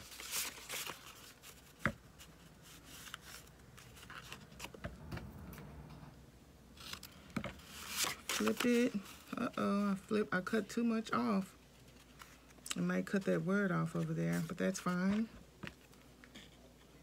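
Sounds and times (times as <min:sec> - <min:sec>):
paper rustling: 0:00.0 - 0:05.1, 0:06.8 - 0:09.6.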